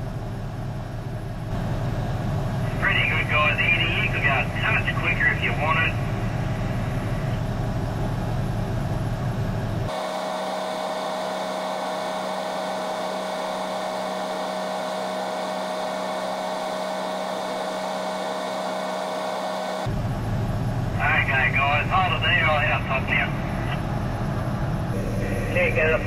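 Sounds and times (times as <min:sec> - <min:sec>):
crane engine rumbling: 0:00.0 - 0:26.0
sped-up machinery whine: 0:00.0 - 0:26.0.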